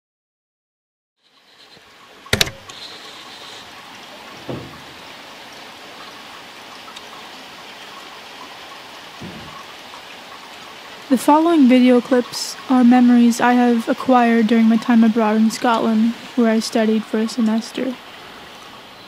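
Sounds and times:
rain hissing: 1.2 - 19.0
sharp knock: 2.3 - 2.7
soft thumps: 4.4 - 4.9, 9.2 - 9.6.

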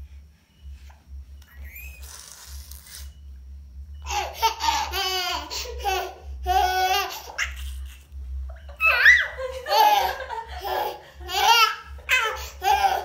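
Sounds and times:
baby laughing: 4.1 - 8.1, 8.8 - 13.0.

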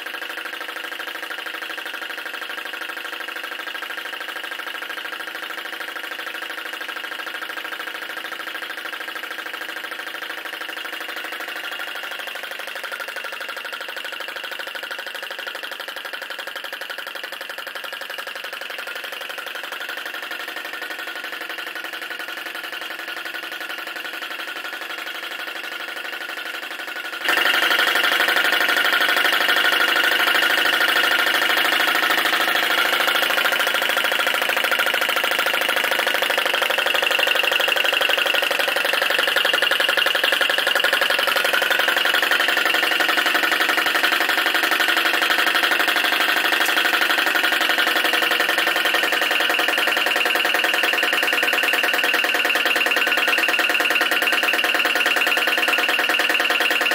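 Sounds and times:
small engine clattering: 0.0 - 56.9.

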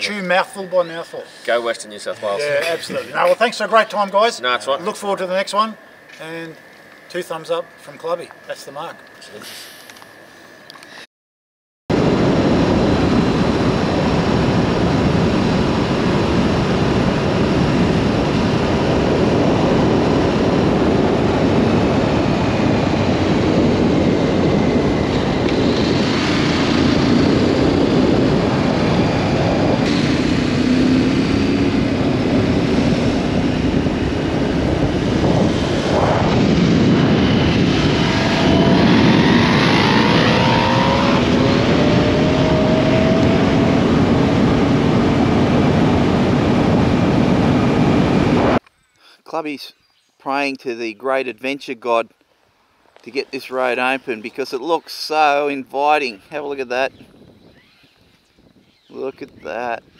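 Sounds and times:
motorcycle engine accelerating: 11.9 - 48.6
wind roaring over microphone: 11.9 - 48.6, 53.0 - 59.9.

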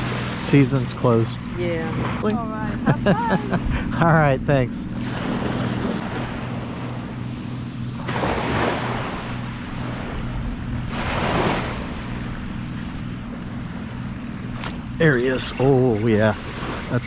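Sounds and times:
surf washing onto beach: 8.0 - 12.9.

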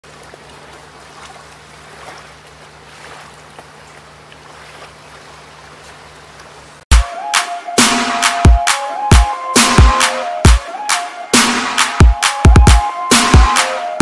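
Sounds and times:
small waves lapping on sand: 0.0 - 6.7
loud electronic music: 6.9 - 14.0.

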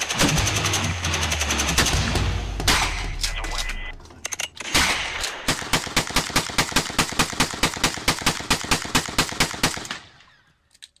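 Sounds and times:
rapid gunshots: 0.0 - 3.6, 4.6 - 10.2.

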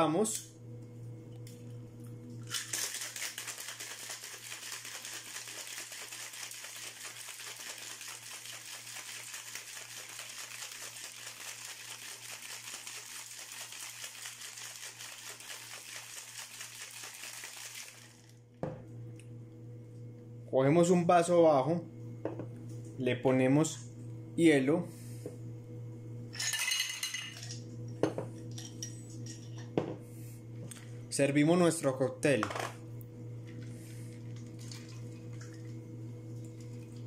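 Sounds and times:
ice rattling in cocktail shaker: 2.4 - 18.3, 26.4 - 27.6.

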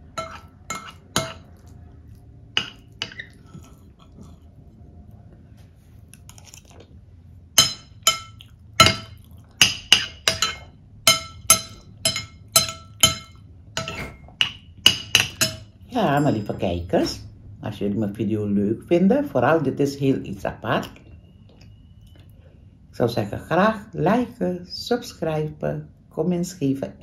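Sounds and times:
metal spoon clinking on plate: 0.1 - 1.5, 7.6 - 16.8.

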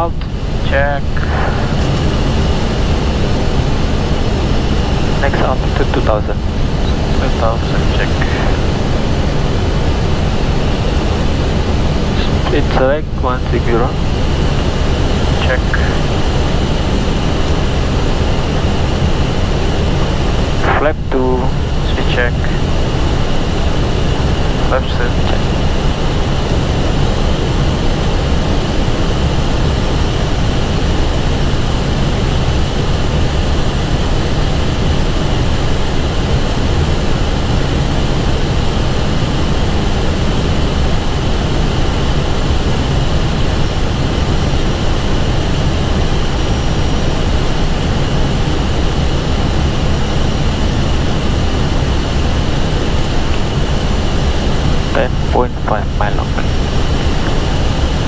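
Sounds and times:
low hum: 0.0 - 58.0
cockpit airflow rush: 0.2 - 18.2.

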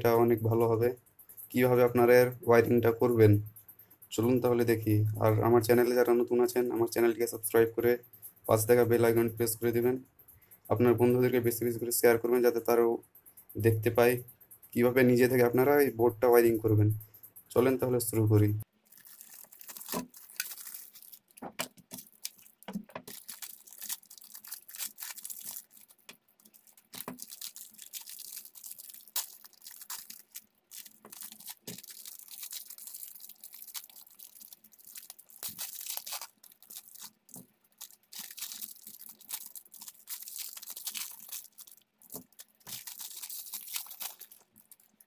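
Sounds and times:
plastic packaging crinkling and tearing: 18.8 - 45.0.

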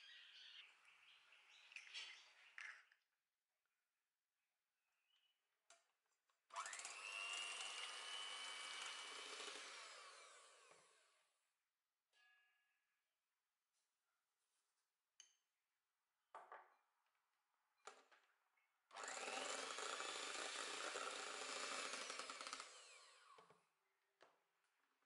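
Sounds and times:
electric hand mixer whining: 6.5 - 11.2, 18.9 - 23.5.

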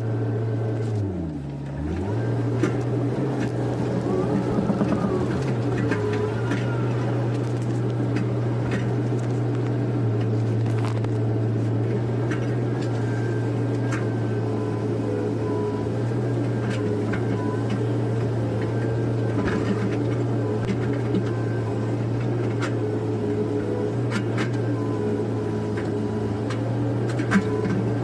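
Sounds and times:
excavator diesel engine droning: 0.0 - 28.0
hydraulic whines: 1.7 - 8.7
faint knocks: 3.7 - 6.7.

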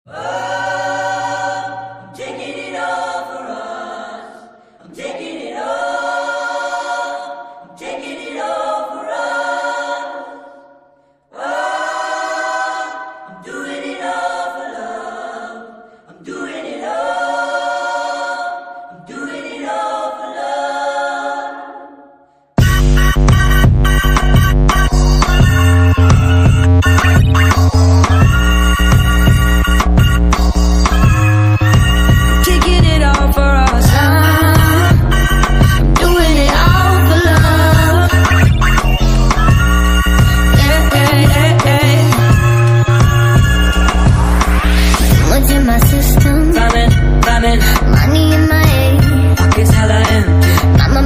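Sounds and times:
choir singing sustained chords: 0.1 - 22.3.

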